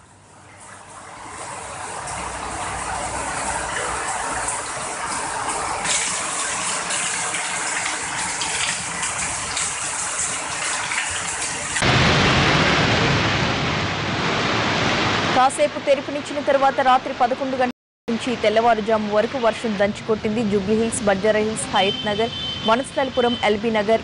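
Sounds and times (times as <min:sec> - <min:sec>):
floodwater rushing: 0:00.4 - 0:17.6
heavy rain hiss: 0:11.4 - 0:16.3.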